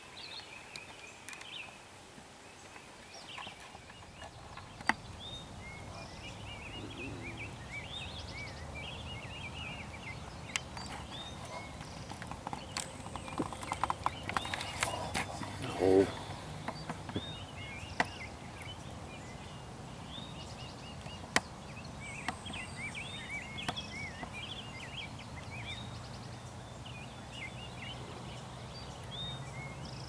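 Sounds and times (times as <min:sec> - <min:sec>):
small bird twittering: 0:03.4 - 0:18.8.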